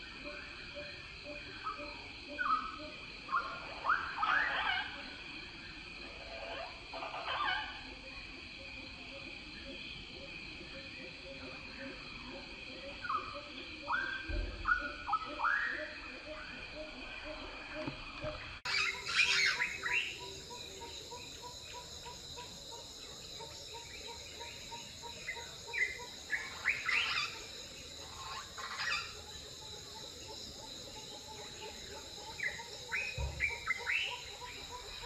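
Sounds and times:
birds chirping: 0:13.1 - 0:35.0.

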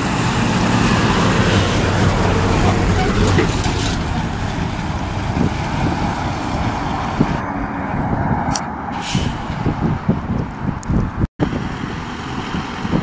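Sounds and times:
fire truck engine driving past: 0:00.0 - 0:10.2.

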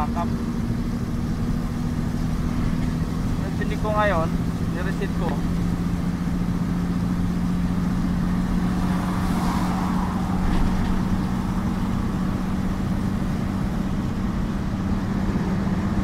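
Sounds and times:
diesel truck engine running: 0:00.0 - 0:16.0.

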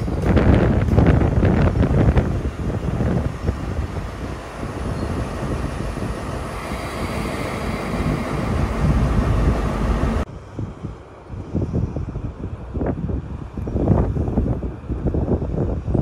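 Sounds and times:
diesel locomotive rumbling: 0:00.0 - 0:10.4.

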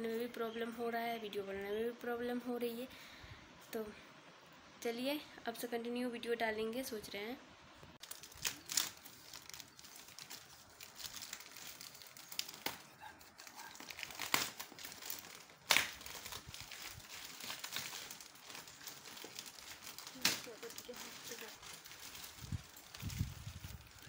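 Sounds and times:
plastic wrapping crinkling and ripping: 0:08.0 - 0:24.0.

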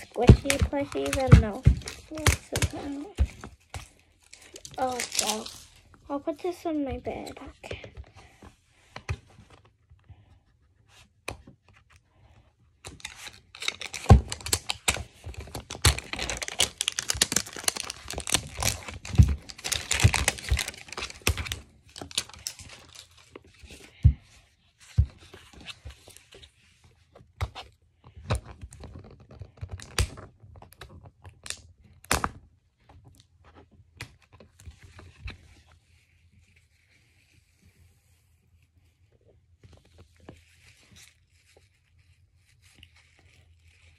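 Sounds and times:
fingers knocking hard plastic: 0:00.0 - 0:03.5
plastic crackling and crinkling: 0:00.0 - 0:10.3, 0:11.0 - 0:43.9.

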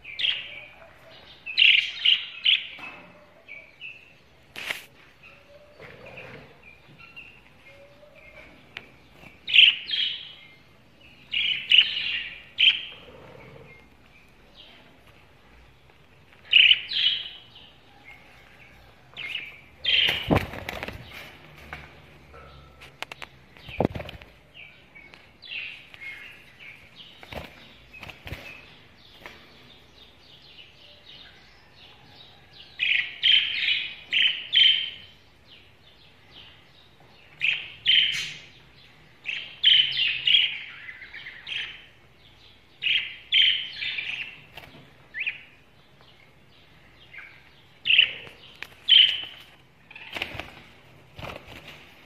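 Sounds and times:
wings fluttering: 0:20.0 - 0:21.4, 0:23.6 - 0:24.4, 0:27.2 - 0:28.6, 0:48.6 - 0:52.0.

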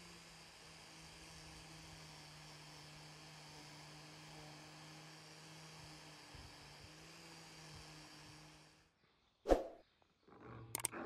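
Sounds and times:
angle grinder sanding wood: 0:00.0 - 0:08.8.

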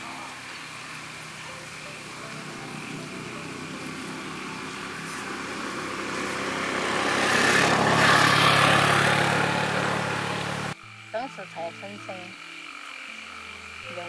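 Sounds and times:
vehicle passing by: 0:00.0 - 0:10.8.

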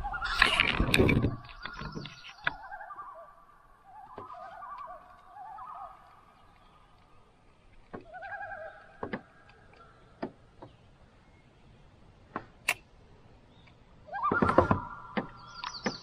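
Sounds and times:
sharp knocks and clicks: 0:09.0 - 0:09.6, 0:10.2 - 0:10.8.

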